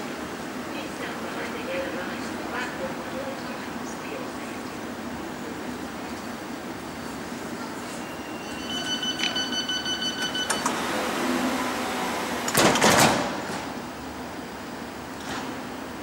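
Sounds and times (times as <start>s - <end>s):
train doors clattering shut: 7.6s - 13.8s
rapid high warning beeps: 8.0s - 10.7s.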